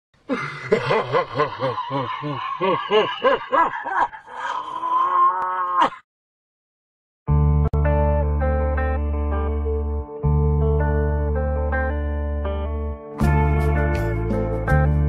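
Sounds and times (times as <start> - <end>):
man laughing: 0.3 - 4.8
man's long rising cry: 0.3 - 6.0.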